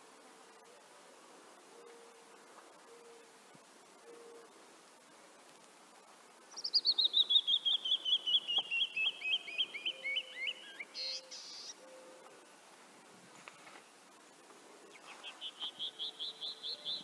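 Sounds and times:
bird singing whistled notes: 6.5s - 12.3s, 14.9s - 17.0s.

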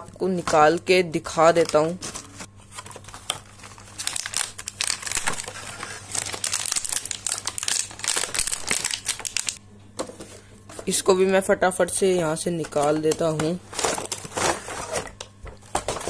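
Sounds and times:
plastic packaging crinkling: 0.3s - 9.6s, 12.6s - 16.0s.

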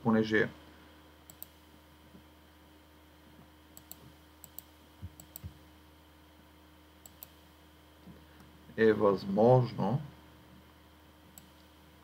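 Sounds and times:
steady low hum: 0.0s - 12.0s
computer mouse clicks: 1.3s - 1.6s, 3.8s - 5.6s, 7.0s - 7.4s, 11.3s - 11.7s.

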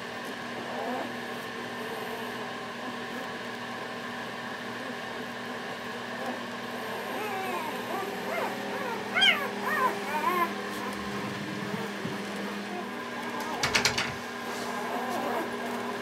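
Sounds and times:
puppies squealing: 6.8s - 15.6s.

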